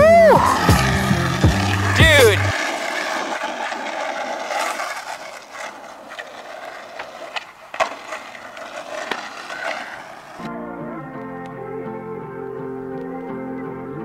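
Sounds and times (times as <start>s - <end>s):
skateboard clicks and knocks: 0.0s - 10.5s
skateboard wheels rolling on pavement: 0.0s - 14.0s.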